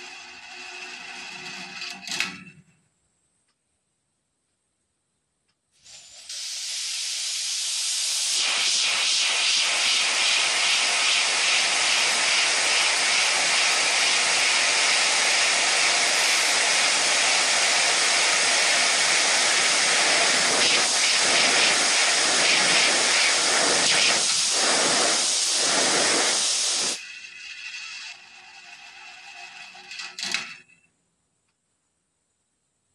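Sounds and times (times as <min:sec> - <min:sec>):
air jet hissing: 0:05.8 - 0:27.2.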